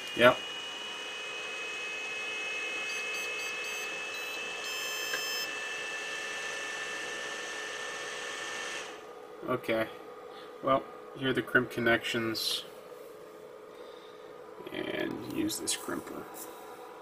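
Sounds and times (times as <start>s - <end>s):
small fans whining: 0.0s - 17.0s
faint high beeps: 2.9s - 5.5s.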